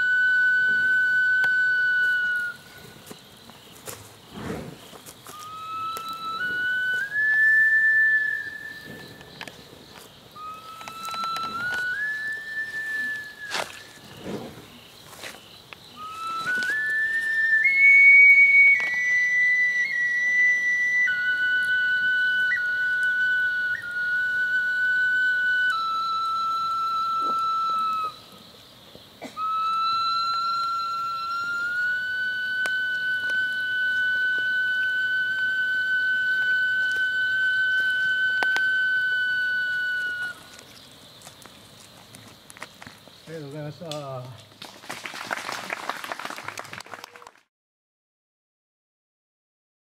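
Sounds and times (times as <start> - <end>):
whistle-like wind instrument melody: 0.0 - 3.0, 5.2 - 9.6, 10.3 - 14.5, 15.9 - 28.4, 29.2 - 40.7.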